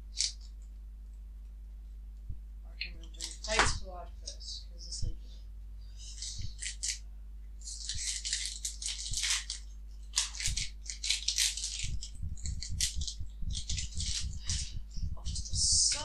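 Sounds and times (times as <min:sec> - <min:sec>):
foil wrapper crinkling: 0:03.1 - 0:03.7, 0:06.1 - 0:07.0, 0:07.6 - 0:14.7.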